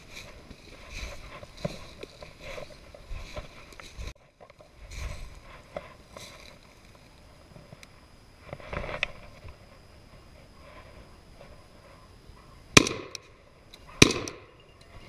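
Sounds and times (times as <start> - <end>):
footsteps crunching through dry leaves: 0.0 - 7.2.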